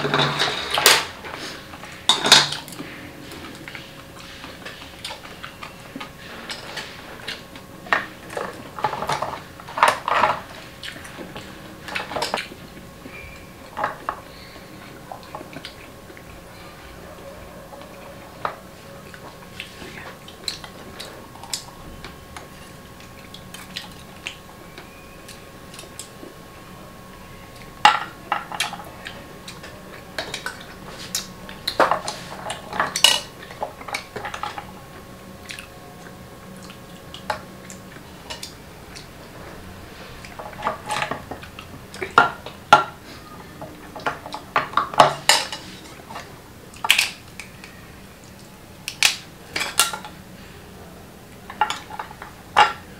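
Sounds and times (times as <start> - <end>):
tableware clattering: 0.0 - 1.1, 2.1 - 2.8, 31.8 - 34.6, 43.9 - 46.0, 49.5 - 50.2, 51.5 - 52.9.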